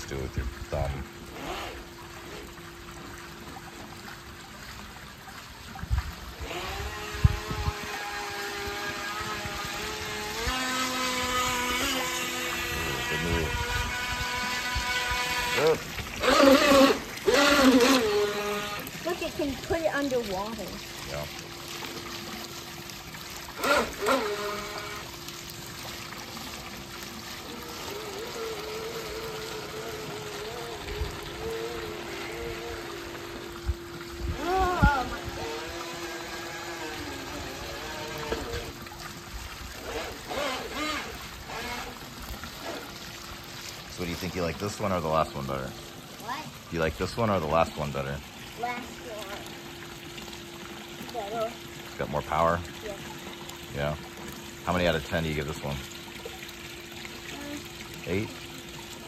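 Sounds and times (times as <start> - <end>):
trickling water: 0.0 - 59.0
electric motor whining: 0.3 - 2.5, 6.3 - 20.8, 23.4 - 25.3, 27.4 - 38.9, 39.7 - 43.0.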